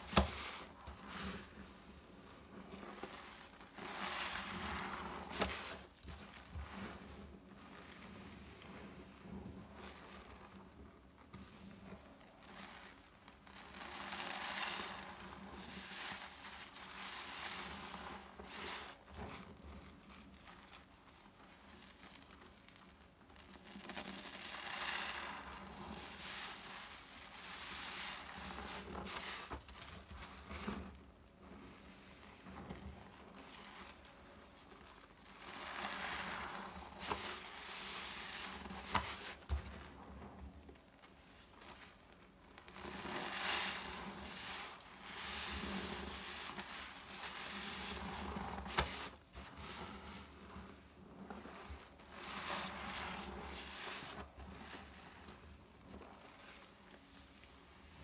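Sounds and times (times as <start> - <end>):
wet squishing of sponge and foam: 0.0 - 58.0.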